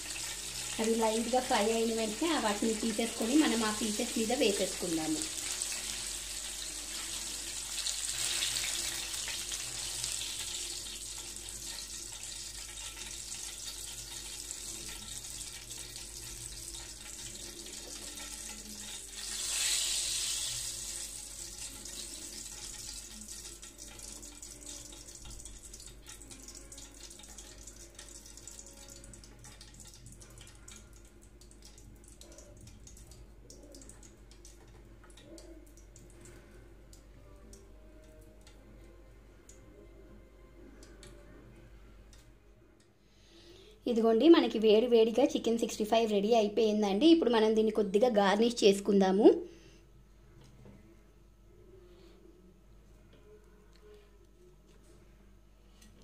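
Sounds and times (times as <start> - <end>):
leaves sizzling in hot oil: 0.0 - 30.8
spoon stirring in oil: 2.1 - 36.2.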